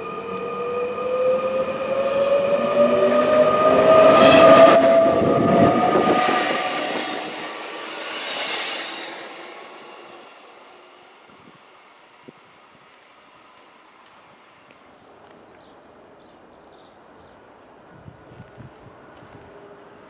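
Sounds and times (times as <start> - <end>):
train wheels rumbling on rails: 0.0 - 14.5
train motor whine: 0.0 - 14.8.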